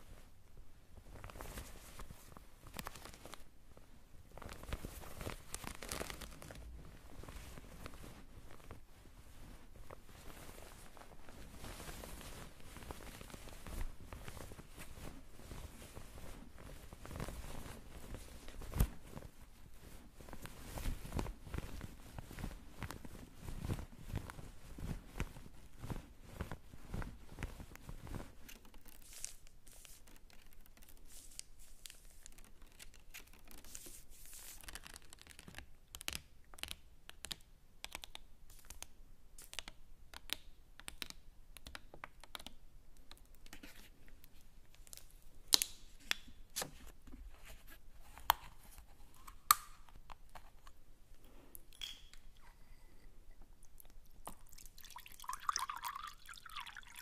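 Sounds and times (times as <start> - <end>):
soft clicks and crackles: 0.0 - 57.0.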